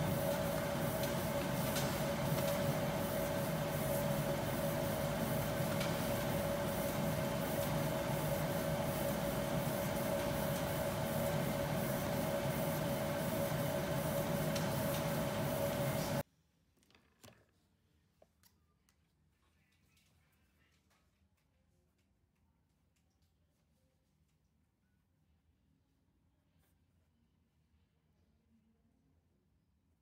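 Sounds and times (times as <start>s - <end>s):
machine whine and rushing: 0.0s - 16.2s.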